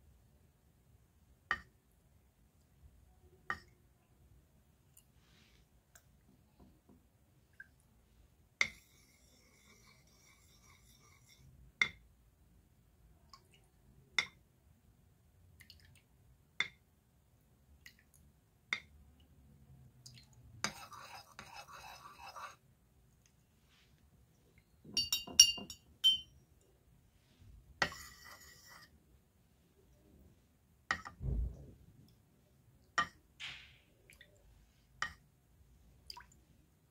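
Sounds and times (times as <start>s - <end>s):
spoon stirring and scraping paint: 8.6s - 12.0s, 20.1s - 26.7s, 27.3s - 29.1s
spoon clinking ceramic bowls: 24.9s - 26.3s.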